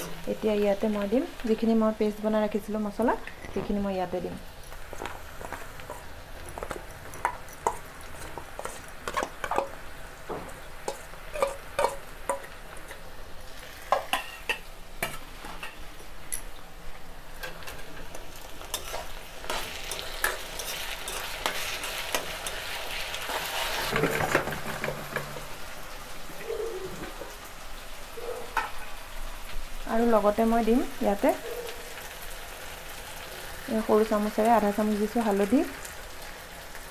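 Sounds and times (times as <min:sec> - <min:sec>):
onions frying in oil: 0:00.0 - 0:36.9
metal utensils clinking and scraping: 0:05.8 - 0:09.8, 0:10.9 - 0:13.0, 0:17.4 - 0:25.4.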